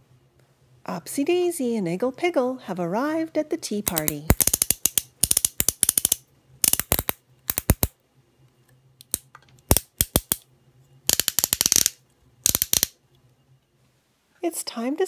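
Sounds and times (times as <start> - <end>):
plastic toy figures clicking: 3.8 - 7.9, 9.0 - 10.4, 11.1 - 13.0.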